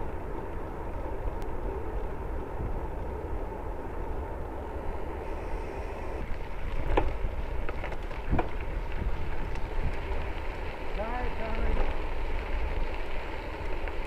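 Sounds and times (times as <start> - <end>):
wind on microphone: 0.0 - 10.5
moving bicycle rumble: 0.0 - 14.0
bike rattling and knocking: 6.8 - 9.1.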